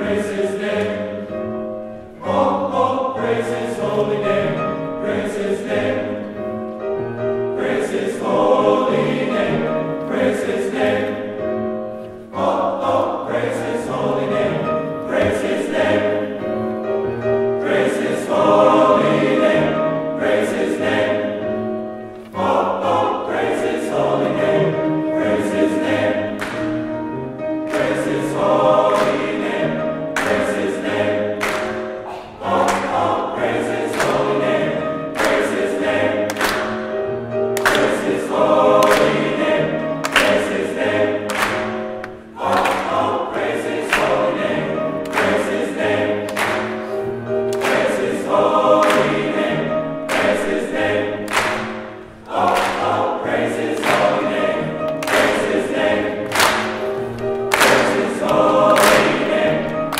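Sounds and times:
men's choir singing a hymn: 0:00.0 - 0:59.9
piano accompaniment: 0:00.0 - 0:59.9
people clapping along: 0:25.3 - 0:26.9, 0:27.5 - 0:59.9.

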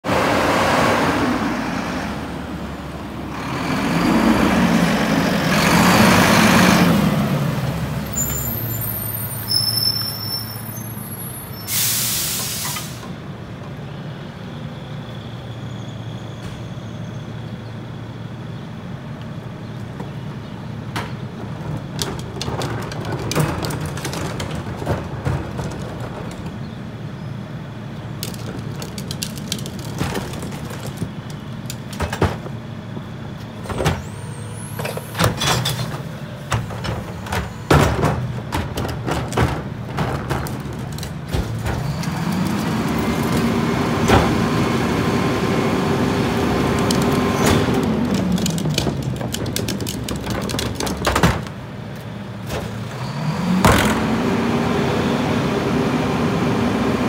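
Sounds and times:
garbage truck diesel engine: 0:00.0 - 0:57.0
brake squeaks: 0:08.0 - 0:12.9
air brakes hissing: 0:08.2 - 0:13.2
plastic trash cart rattling: 0:21.4 - 0:26.6, 0:28.2 - 0:32.4, 0:46.6 - 0:51.6.

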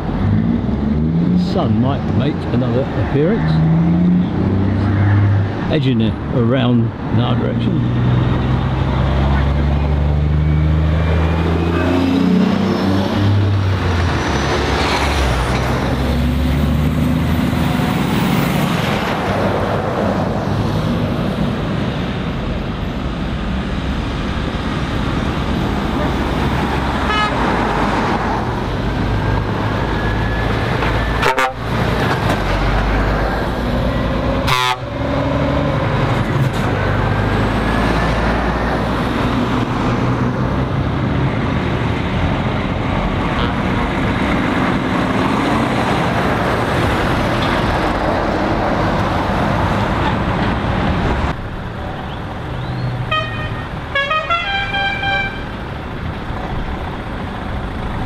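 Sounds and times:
heavy traffic passing: 0:00.0 - 0:58.0
tyre noise on road: 0:00.0 - 0:58.0
lorry horn playing notes: 0:27.1 - 0:27.4, 0:31.2 - 0:31.7, 0:34.4 - 0:34.9, 0:53.1 - 0:55.5.

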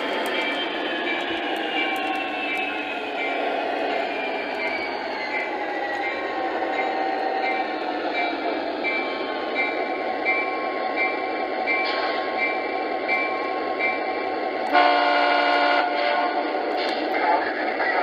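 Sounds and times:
loud train horn blast: 0:14.7 - 0:16.5.

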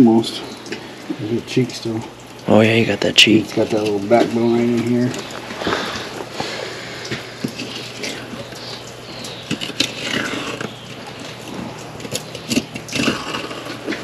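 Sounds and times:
knife scraping over fish bones: 0:07.2 - 0:14.0.

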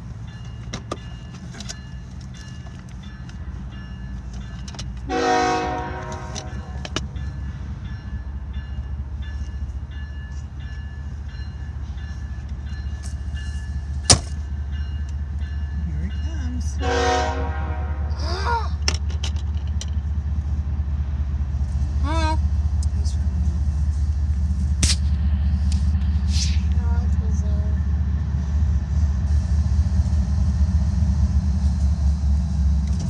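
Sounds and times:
locomotive horn blasts: 0:05.1 - 0:07.0, 0:16.8 - 0:18.2
sharp click: 0:24.8 - 0:25.1.

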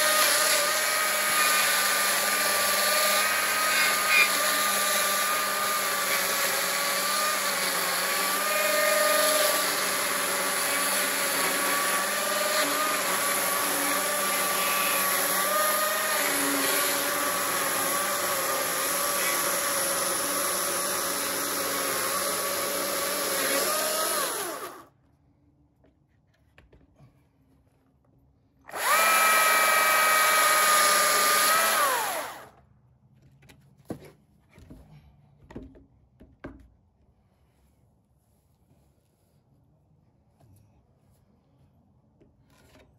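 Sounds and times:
chainsaw cutting log: 0:00.0 - 0:24.9, 0:28.7 - 0:32.6
wood knocks: 0:33.9 - 0:36.8.

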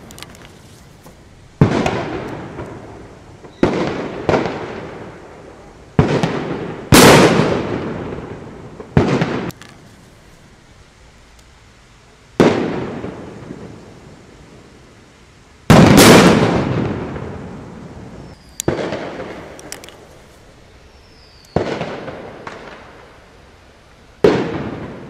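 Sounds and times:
firecracker bangs with echo: 0:01.6 - 0:05.2, 0:06.0 - 0:09.6, 0:12.4 - 0:13.6, 0:15.7 - 0:17.5, 0:18.6 - 0:19.5, 0:21.5 - 0:22.8, 0:24.2 - 0:25.0.

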